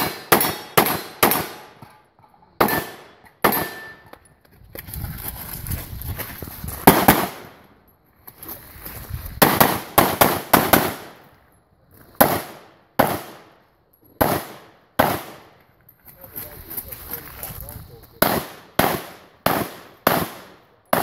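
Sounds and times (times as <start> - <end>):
pistol shots with echo: 0.0 - 1.9, 2.6 - 4.0, 6.9 - 7.6, 9.4 - 11.2, 12.2 - 13.6, 14.2 - 15.6, 18.2 - 21.0.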